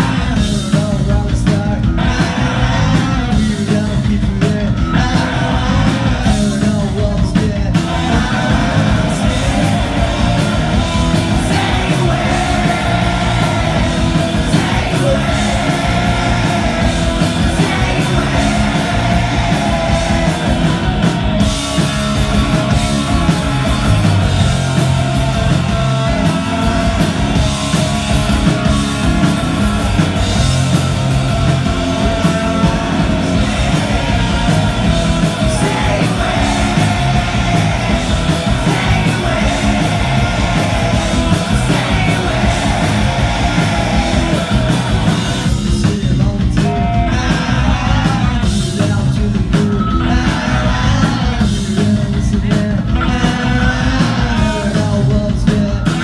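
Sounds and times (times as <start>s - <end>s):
man singing: 0.0s - 20.9s, 31.9s - 56.0s
bass guitar: 0.0s - 56.0s
drums: 0.0s - 56.0s
electric guitar: 0.0s - 56.0s.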